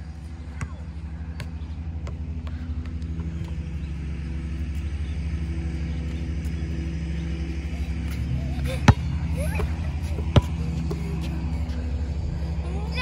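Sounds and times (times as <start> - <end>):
engine rumbling: 0.0 - 13.0
basketball bouncing: 0.5 - 3.6, 8.8 - 11.4.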